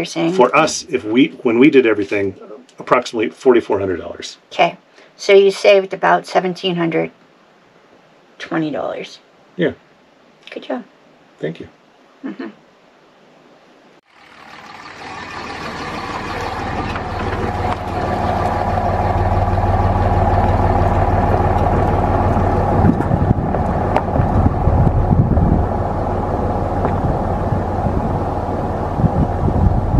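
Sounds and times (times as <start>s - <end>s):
truck engine drone: 14.1s - 29.9s
gravel ticks: 14.2s - 25.1s, 26.7s - 27.8s.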